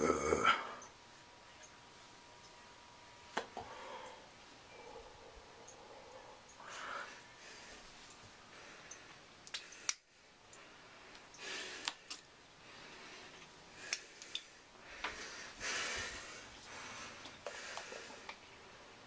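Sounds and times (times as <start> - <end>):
breathy hiss: 3.6 - 18.4.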